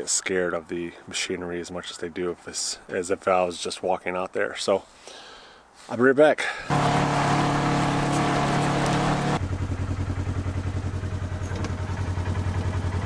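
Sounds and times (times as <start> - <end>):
vehicle engine running: 6.7 - 13.0.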